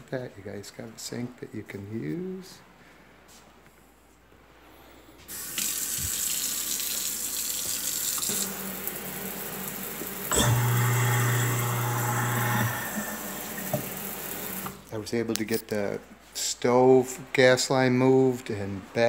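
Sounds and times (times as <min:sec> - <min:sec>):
low mechanical hum: 0:00.0 - 0:19.0
water running into a steel sink: 0:05.3 - 0:14.8.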